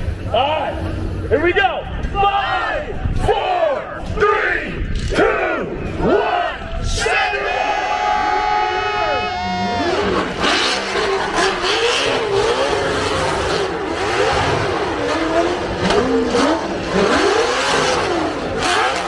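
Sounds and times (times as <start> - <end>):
car engine revving: 9.2 - 19.0.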